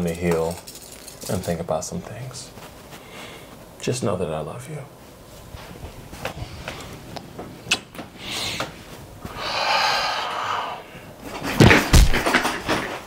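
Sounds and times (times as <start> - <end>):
rustling: 0.0 - 3.9
heavy thud with knocks: 11.6 - 12.6.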